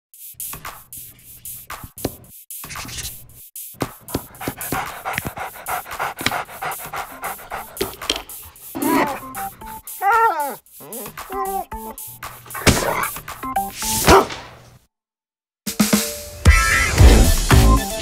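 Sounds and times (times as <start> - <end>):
dog panting: 4.1 - 11.8.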